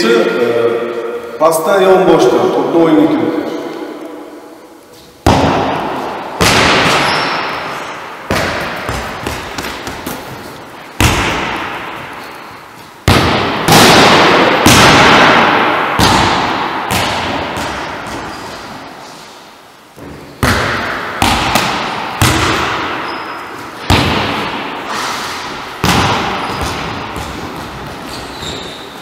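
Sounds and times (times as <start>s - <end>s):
volleyball hits echoing in gym: 5.2s - 19.0s, 20.0s - 29.0s.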